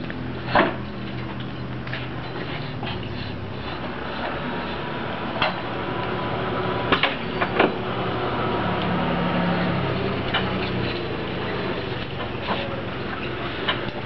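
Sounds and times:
engine humming: 0:00.0 - 0:14.0
metallic clicks and clanks: 0:10.2 - 0:14.0.

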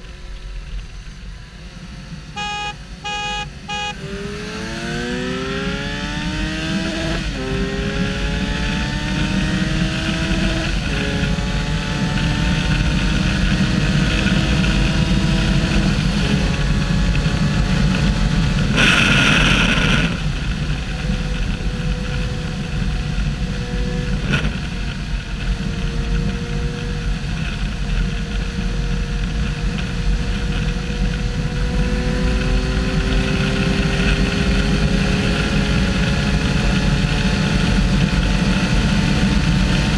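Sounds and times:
loud rush of noise: 0:00.0 - 0:26.4
motorcycle engine accelerating: 0:00.0 - 0:39.9
wind roar: 0:04.0 - 0:39.9.

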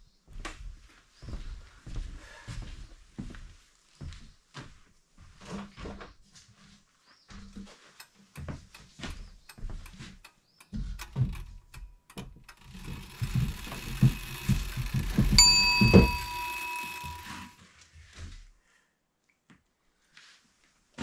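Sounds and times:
bell ding sound effect: 0:15.4 - 0:17.5.

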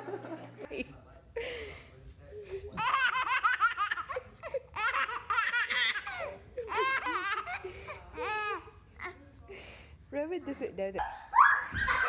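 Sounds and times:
baby laughing: 0:02.7 - 0:09.1.

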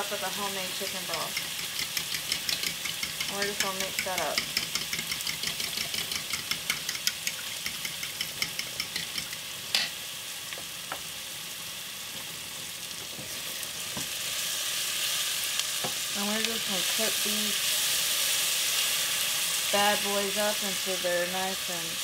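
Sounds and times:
chicken sizzling in pan: 0:00.0 - 0:22.0
spoon clicking against bowl: 0:01.3 - 0:09.9.

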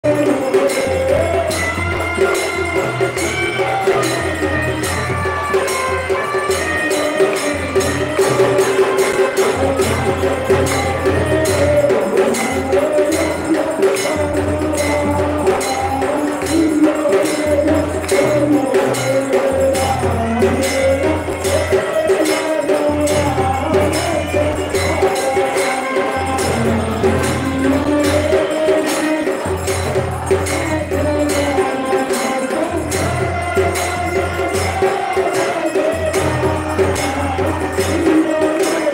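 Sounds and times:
jingling hand percussion: 0:00.0 - 0:38.9
wavering devotional singing: 0:00.0 - 0:38.9.

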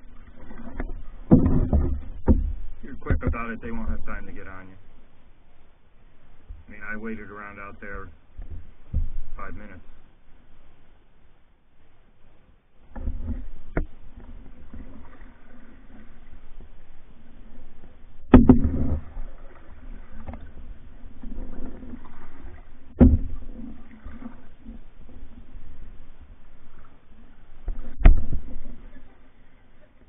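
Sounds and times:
water swishing against canoe hull: 0:00.0 - 0:30.0
sharp knocks: 0:18.3 - 0:19.0, 0:23.0 - 0:23.4.

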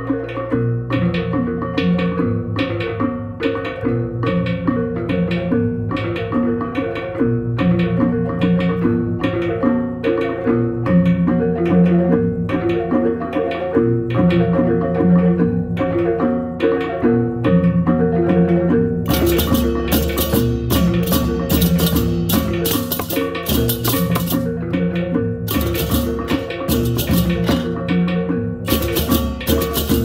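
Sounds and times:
hand drums: 0:00.0 - 0:30.0
hand cymbals clashing: 0:19.1 - 0:24.6, 0:28.7 - 0:30.0.

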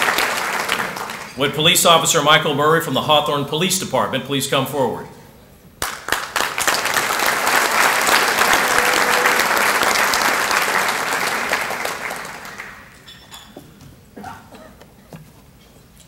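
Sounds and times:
audience applauding: 0:00.0 - 0:01.4, 0:05.8 - 0:13.1.

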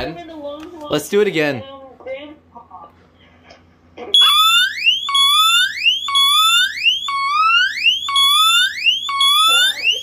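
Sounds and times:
smoke alarm siren: 0:04.2 - 0:10.0.

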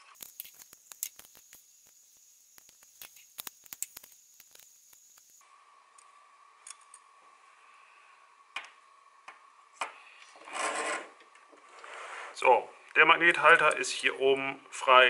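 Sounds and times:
adhesive tape crinkling: 0:00.0 - 0:05.4.

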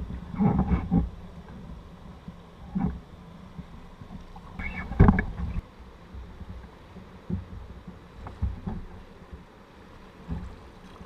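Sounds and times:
rushing water: 0:00.0 - 0:11.0
water knocking against hull: 0:04.1 - 0:05.6.

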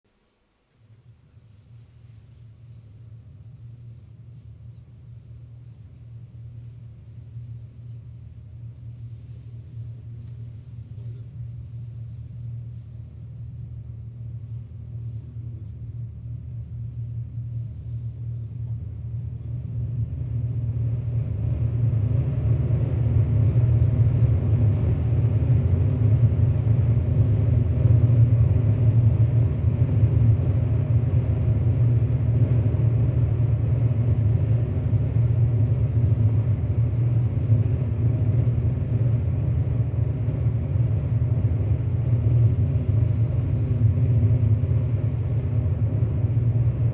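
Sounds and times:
deep synthesizer drone: 0:11.4 - 0:46.9.

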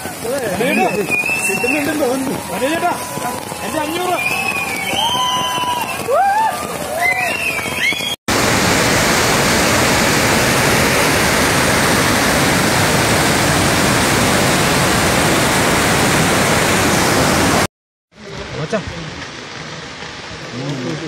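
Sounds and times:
loud rush of water: 0:06.6 - 0:17.7.

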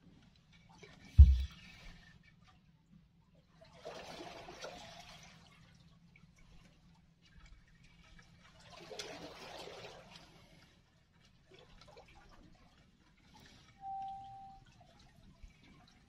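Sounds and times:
faint water lapping: 0:03.5 - 0:16.0.

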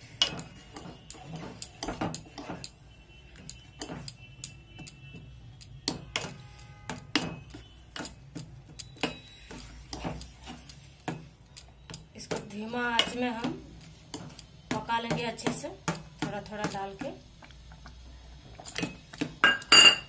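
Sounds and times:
metal spoon stirring in a pot: 0:00.0 - 0:20.0
pot ringing: 0:19.4 - 0:20.0.

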